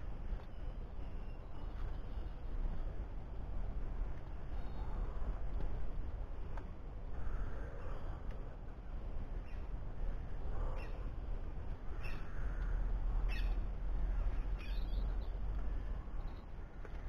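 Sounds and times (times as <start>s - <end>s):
crow cawing: 12.0s - 13.6s.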